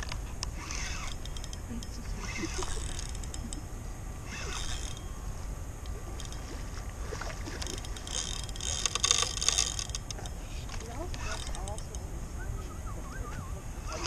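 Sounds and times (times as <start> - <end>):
fishing reel clicking: 0.0 - 3.6, 4.3 - 5.0, 5.8 - 6.4, 7.5 - 12.0
low steady rumble: 0.0 - 14.0.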